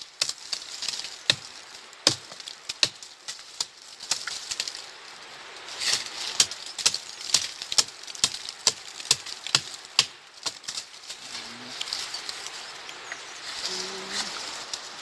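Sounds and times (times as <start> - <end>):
machete chopping tree trunk: 1.3 - 4.3, 6.8 - 10.8.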